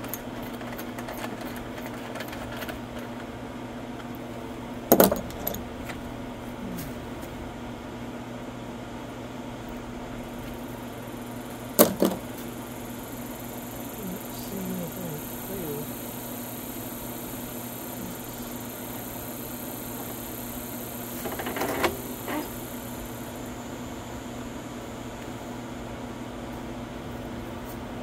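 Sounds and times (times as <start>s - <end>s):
lawn mower engine running: 10.1s - 26.2s.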